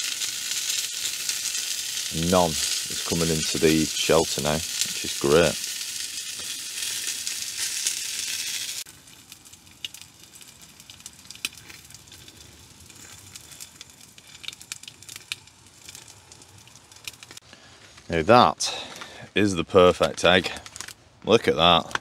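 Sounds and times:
sausages sizzling in a pan: 0:00.0 - 0:17.4
fire pops and crackles: 0:00.0 - 0:22.0.

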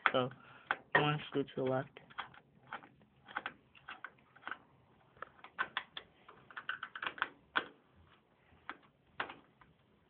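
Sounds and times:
screwdriver clicks and scrapes: 0:02.1 - 0:04.6.

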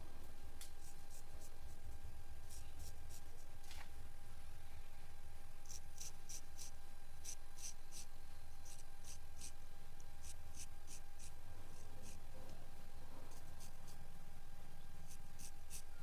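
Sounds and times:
razor scraping hair off scalp: 0:05.6 - 0:09.6, 0:10.2 - 0:11.3, 0:15.1 - 0:15.8.

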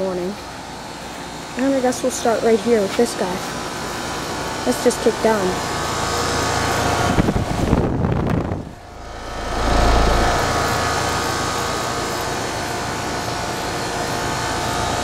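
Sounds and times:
heat pump humming: 0:00.0 - 0:15.0
uneven low rumble: 0:07.2 - 0:11.9.

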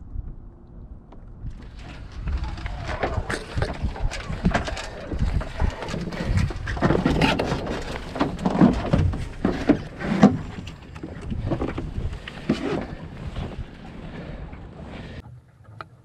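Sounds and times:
wind buffeting microphone: 0:00.0 - 0:15.2
water: 0:00.0 - 0:16.0
wood creaking: 0:01.2 - 0:15.8
rigging knocking and rattling: 0:01.5 - 0:13.6.

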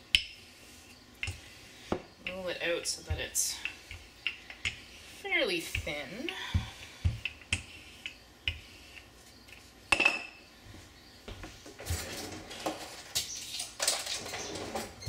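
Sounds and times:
utensils rustling and scraping: 0:10.8 - 0:15.0.

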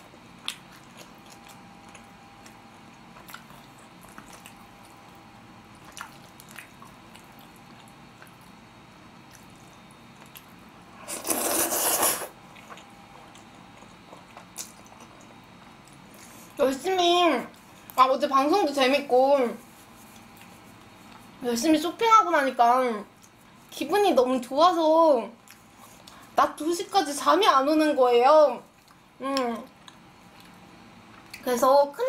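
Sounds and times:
person slurping noodles: 0:11.0 - 0:12.4.

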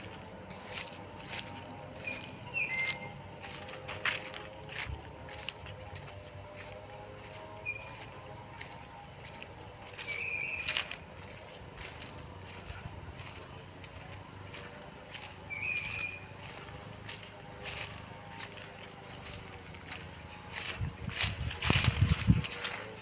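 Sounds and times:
high insect drone: 0:00.0 - 0:23.0
bird whistled call: 0:02.4 - 0:03.2.

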